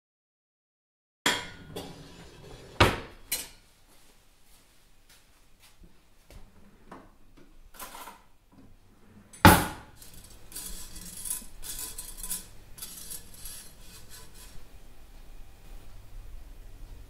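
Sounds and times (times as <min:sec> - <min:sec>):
fork scraping metal pan: 0:01.3 - 0:03.5, 0:09.9 - 0:14.8.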